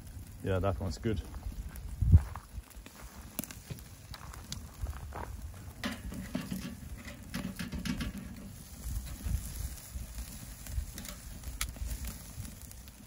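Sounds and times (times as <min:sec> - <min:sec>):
metal tongs clicking on grill grate: 0:10.8 - 0:11.8.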